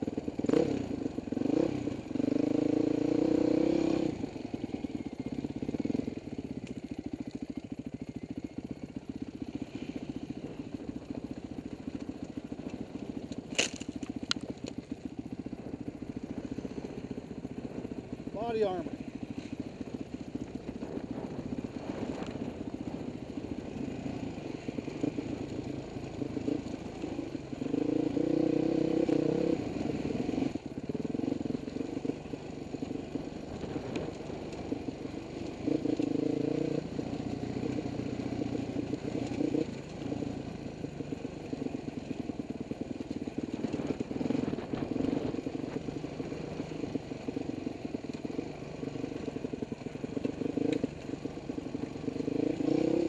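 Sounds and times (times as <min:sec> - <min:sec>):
dirt bike engine revving: 0:00.4 - 0:04.2, 0:23.6 - 0:32.3, 0:35.2 - 0:40.4, 0:52.2 - 0:53.0.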